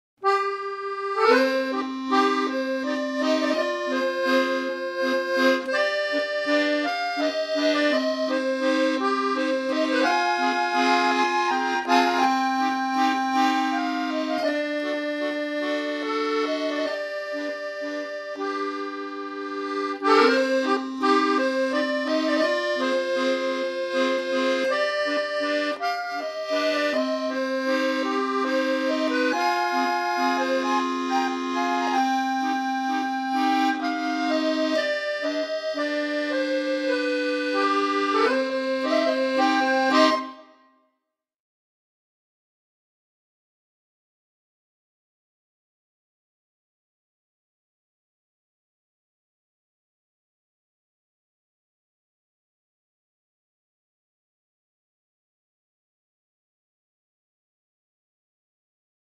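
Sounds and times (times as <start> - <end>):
instrumental music with reedy tones: 0.2 - 40.8.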